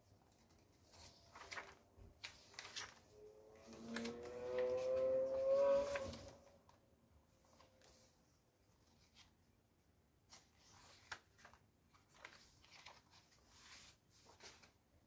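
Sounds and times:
paper pages turning: 0.1s - 6.8s, 7.4s - 8.1s, 10.3s - 14.8s.

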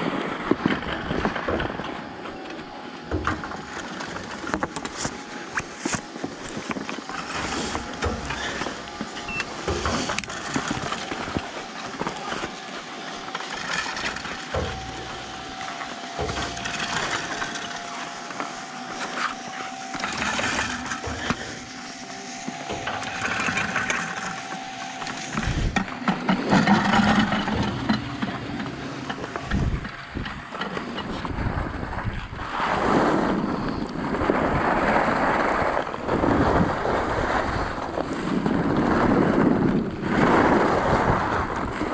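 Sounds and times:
steady machine whine: 0.0s - 41.9s
skis sliding over packed snow: 3.6s - 29.9s, 30.5s - 41.9s
wind on microphone: 19.4s - 26.0s, 26.6s - 41.9s.

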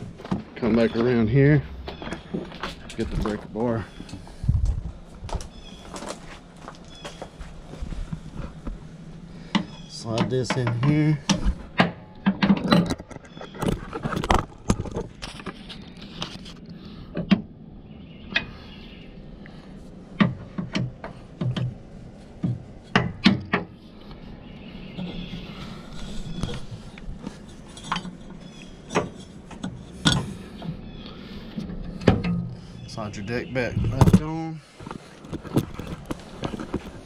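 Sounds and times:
metallic clanks and knocks: 9.5s - 15.6s, 27.3s - 30.8s, 31.6s - 32.6s.

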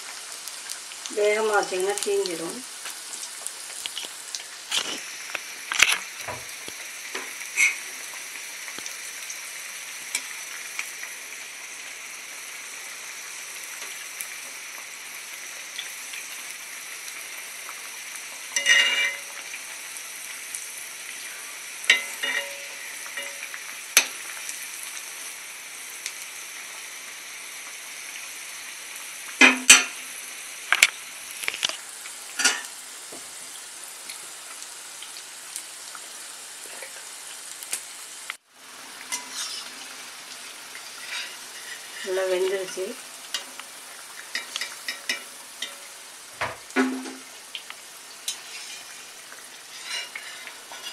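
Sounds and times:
food deep-frying in oil: 0.0s - 50.9s
metal ladle clinking on pan: 18.6s - 19.3s, 21.9s - 23.4s.

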